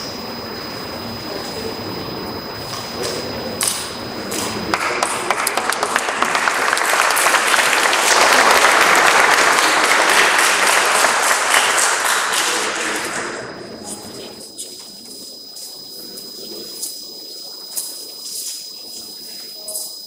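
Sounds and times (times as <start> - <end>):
audience applause: 3.6 - 14.2.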